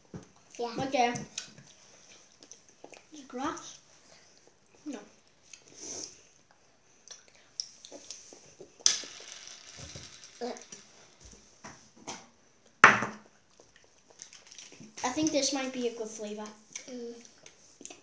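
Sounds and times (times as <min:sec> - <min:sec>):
jelly beans rattling in bowl: 0:08.8 - 0:11.3, 0:14.1 - 0:15.4.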